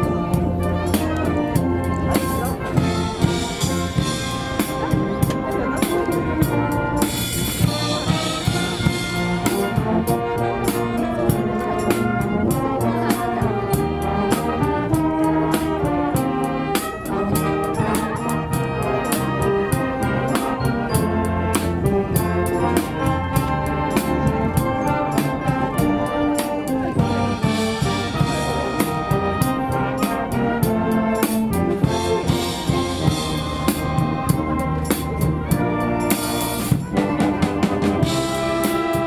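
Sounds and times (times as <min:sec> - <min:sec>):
drum kit beat: 0:00.0 - 0:12.8
brass playing: 0:00.0 - 0:39.0.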